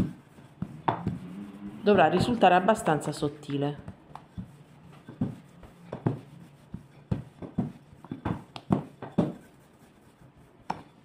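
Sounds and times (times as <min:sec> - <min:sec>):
rolling pin rolling dough: 0:00.0 - 0:11.0
rolling pin knocks and taps: 0:03.8 - 0:09.4.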